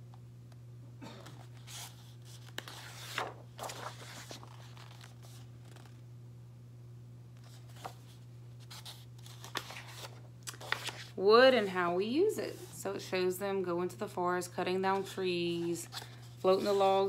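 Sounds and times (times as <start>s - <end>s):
book pages rustling: 1.3s - 6.0s, 7.4s - 11.8s, 15.0s - 17.0s.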